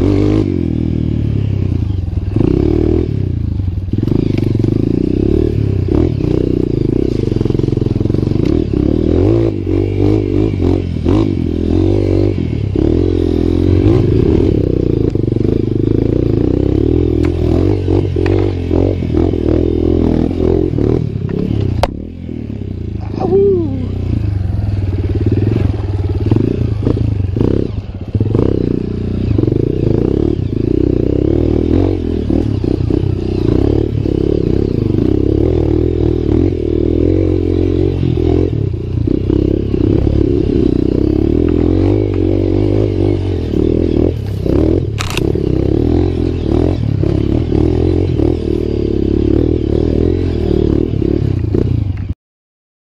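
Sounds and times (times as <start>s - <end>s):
dirt bike engine running: 0.0s - 52.2s.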